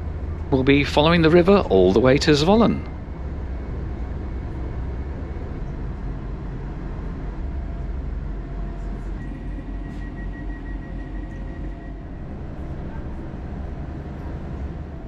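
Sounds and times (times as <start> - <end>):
train diesel engine rumble: 0.0 - 15.0
steady high tone: 8.0 - 15.0.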